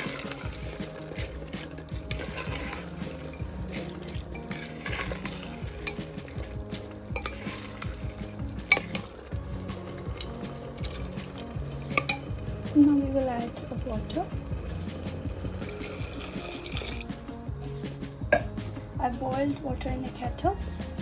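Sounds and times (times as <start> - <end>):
spoon stirring thick sauce: 0.0 - 17.1
light sizzle: 0.0 - 18.9.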